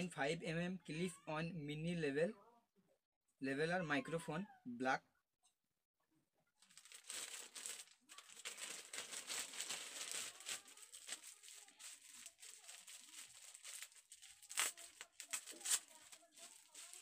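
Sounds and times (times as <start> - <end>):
plastic packaging crinkling: 6.6 - 17.0.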